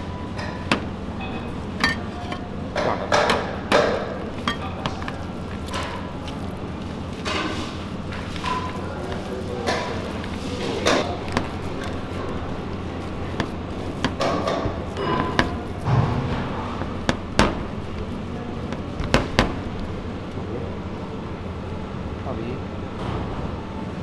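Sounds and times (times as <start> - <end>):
hands mixing soft food: 0.0 - 20.5
kitchen hum: 0.0 - 24.0
clinks and knocks on plate: 0.4 - 5.2, 14.0 - 16.0.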